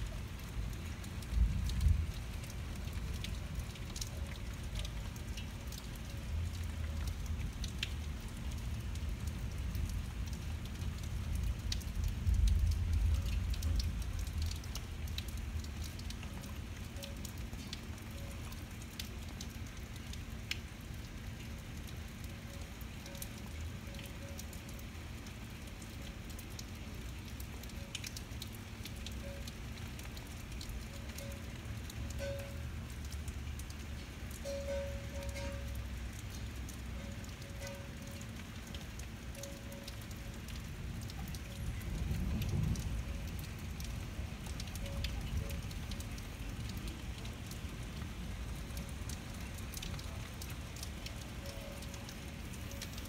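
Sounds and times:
steady rain falling: 0.0s - 53.0s
low thunder rumble: 0.6s - 3.6s, 40.8s - 46.7s.

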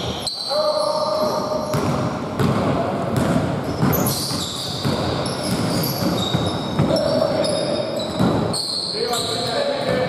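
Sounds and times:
sneaker squeaks: 0.0s - 2.5s, 3.2s - 10.0s
basketball dribbling: 1.3s - 8.6s.

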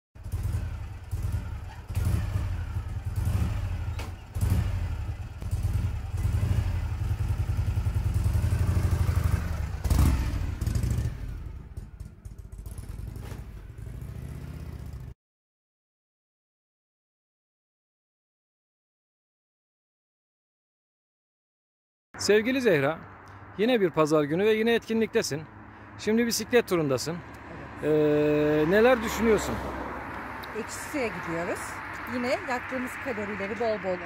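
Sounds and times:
motorcycle engine revving: 0.2s - 15.2s, 27.2s - 34.0s.

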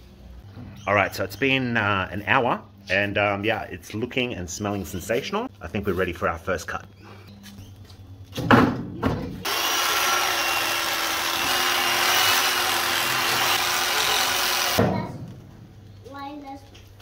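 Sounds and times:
electric knife motor whine: 9.4s - 14.8s.

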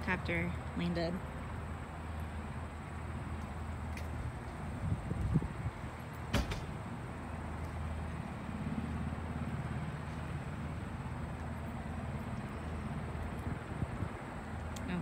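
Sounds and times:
sharp knock: 6.3s - 6.7s.

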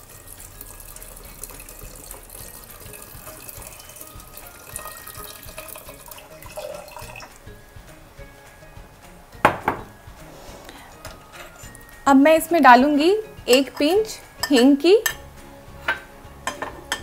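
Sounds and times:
water pouring into a pot: 0.0s - 7.5s.

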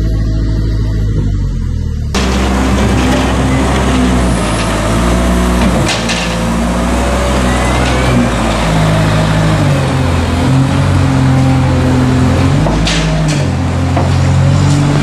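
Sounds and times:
wheel loader diesel engine: 0.0s - 15.0s.

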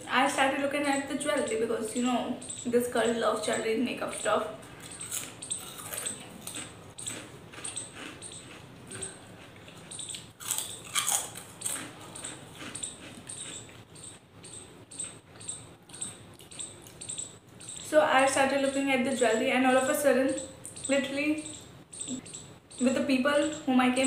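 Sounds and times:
crunchy snacks being chewed: 4.8s - 14.2s.

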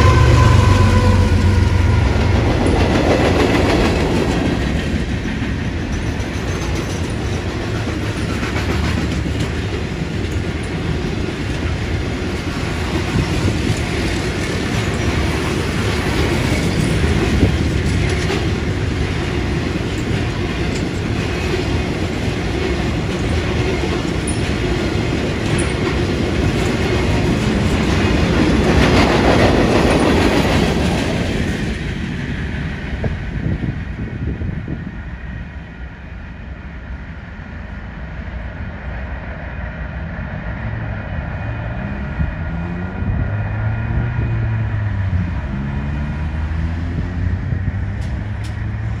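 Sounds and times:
train wheels clacking over rail joints: 0.0s - 32.6s.

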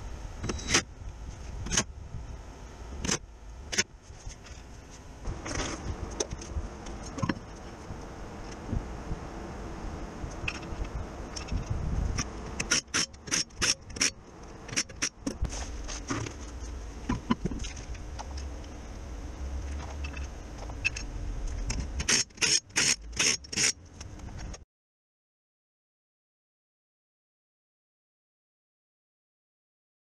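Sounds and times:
wheel handling clicks and scrapes: 3.0s - 8.7s, 10.3s - 18.7s, 19.5s - 24.6s
pneumatic impact wrench bursts: 12.6s - 14.1s, 22.0s - 23.8s.

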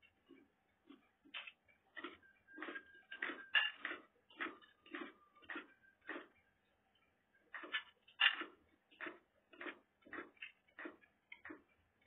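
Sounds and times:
cutlery clinking on ceramic plates: 2.0s - 6.3s, 7.5s - 11.6s.

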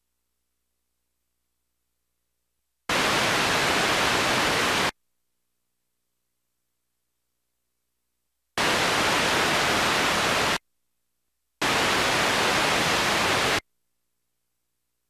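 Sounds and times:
videotape static hiss: 2.9s - 4.9s, 8.6s - 10.6s, 11.6s - 13.6s.

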